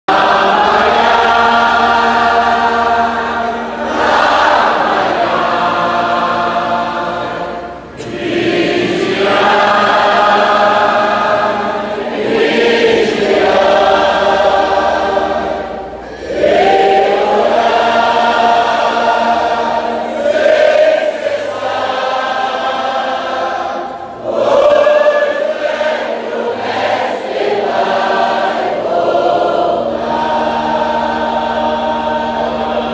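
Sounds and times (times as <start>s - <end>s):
congregation singing a hymn: 0.1s - 32.9s.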